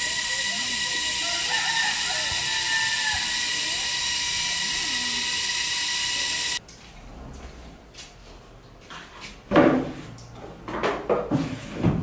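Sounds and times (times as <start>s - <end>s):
cicadas buzzing: 0.0s - 6.6s
faint voices: 0.0s - 6.6s.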